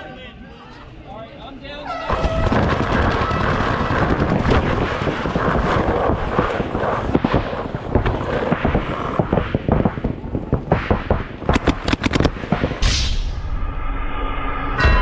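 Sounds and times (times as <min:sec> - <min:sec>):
paintball shots popping: 0:02.1 - 0:13.0
wind on microphone: 0:02.1 - 0:13.3.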